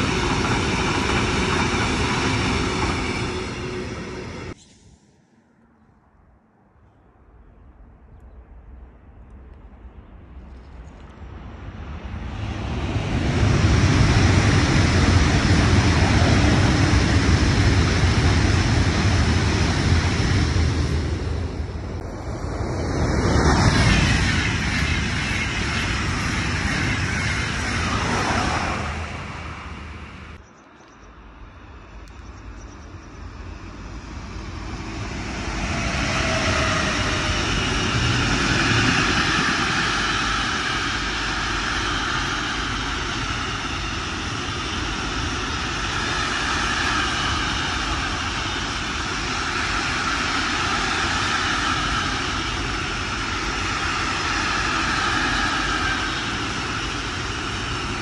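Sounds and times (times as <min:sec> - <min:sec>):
freight train rolling on rails: 0:00.0 - 0:05.2, 0:08.6 - 0:58.0
departing passenger train: 0:00.0 - 0:58.0.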